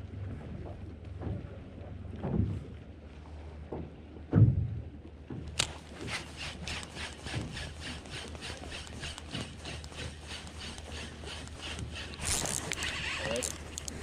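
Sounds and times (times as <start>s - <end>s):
fishing reel cranking: 5.6s - 14.0s.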